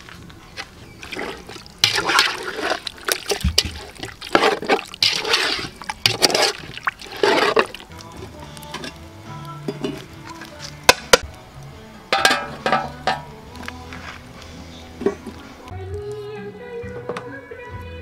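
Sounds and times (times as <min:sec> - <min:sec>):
curry sloshing while stirred: 0:00.8 - 0:08.1.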